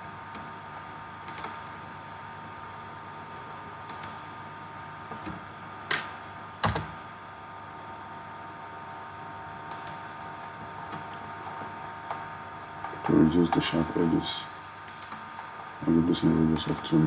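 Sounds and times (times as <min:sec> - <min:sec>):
faint hum: 0:00.0 - 0:17.0
computer mouse clicks: 0:01.2 - 0:01.6, 0:03.9 - 0:04.2, 0:09.7 - 0:10.0, 0:14.9 - 0:15.5.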